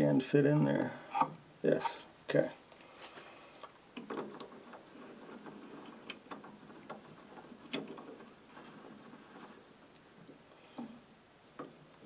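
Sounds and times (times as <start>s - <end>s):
low rustle: 2.7s - 12.0s.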